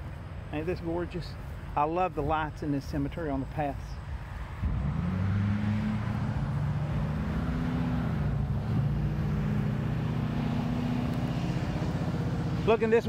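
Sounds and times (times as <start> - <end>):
engine running: 4.6 - 13.0.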